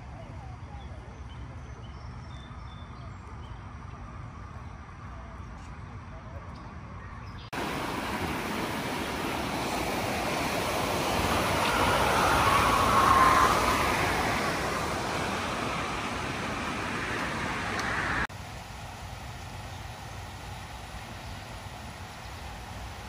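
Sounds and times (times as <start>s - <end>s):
floodwater rushing through a creek: 7.6s - 23.0s.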